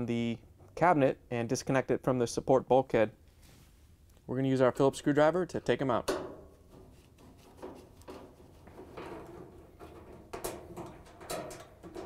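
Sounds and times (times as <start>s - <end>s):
screwdriver scraping sheet metal: 6.7s - 12.0s.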